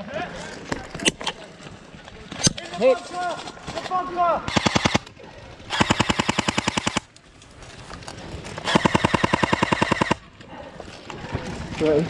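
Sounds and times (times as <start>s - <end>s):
airsoft rifle full-auto bursts: 4.5s - 5.1s, 5.7s - 7.1s, 8.6s - 10.2s.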